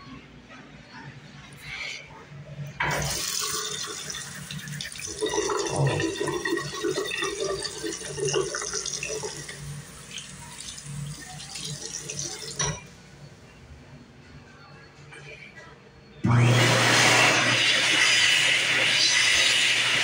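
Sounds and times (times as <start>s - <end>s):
faucet water splashing into sink: 2.8s - 12.8s.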